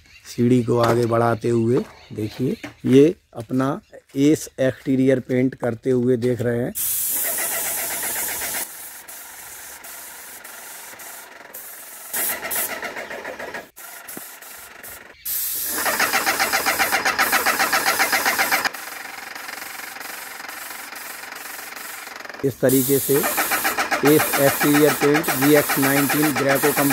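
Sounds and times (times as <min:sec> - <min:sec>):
steady hiss: 0:06.8 - 0:12.5, 0:15.2 - 0:16.2, 0:20.0 - 0:26.9
paint sprayer pump pulsing: 0:06.8 - 0:26.9.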